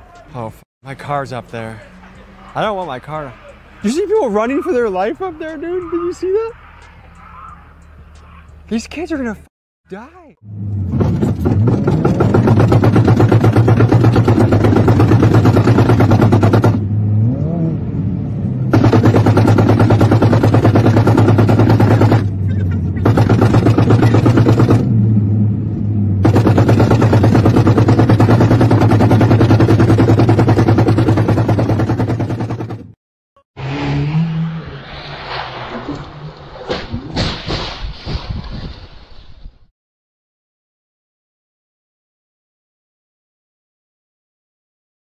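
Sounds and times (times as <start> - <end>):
car engine revving hard: 10.5 - 22.4, 33.6 - 36.3.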